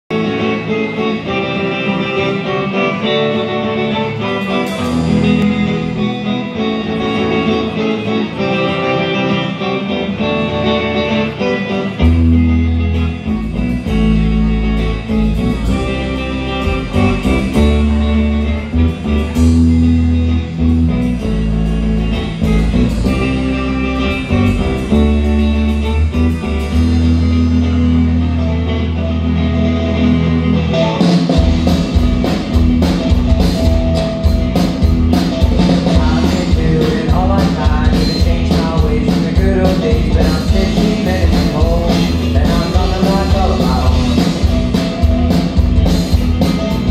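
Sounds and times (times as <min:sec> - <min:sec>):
drums: 0:00.0 - 0:46.9
electric guitars: 0:00.0 - 0:46.9
heavy low bass: 0:12.0 - 0:46.9.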